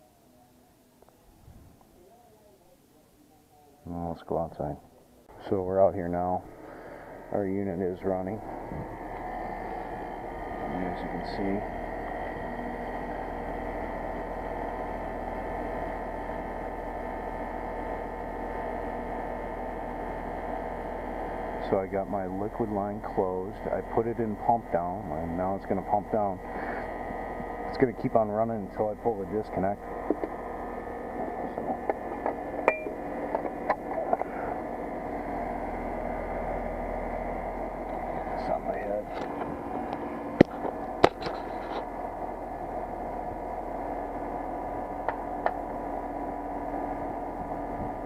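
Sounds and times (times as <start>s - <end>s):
heat pump rushing hum: 3.8s - 48.0s.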